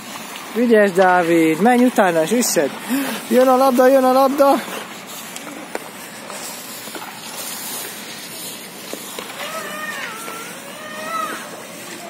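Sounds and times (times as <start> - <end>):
steady hiss: 0.0 - 12.0
hockey sticks clicking on puck: 4.7 - 12.0
child calling out: 9.3 - 11.8.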